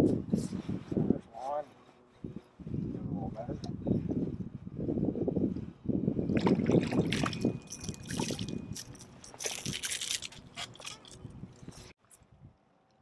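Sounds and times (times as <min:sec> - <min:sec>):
small water splashes and drips: 0:06.4 - 0:08.6
water sloshing around kayak: 0:06.4 - 0:11.2.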